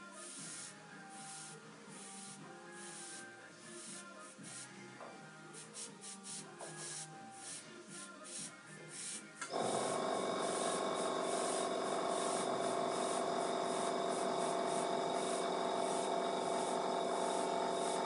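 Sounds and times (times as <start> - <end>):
airbrush compressor buzzing hum: 9.5 - 18.0.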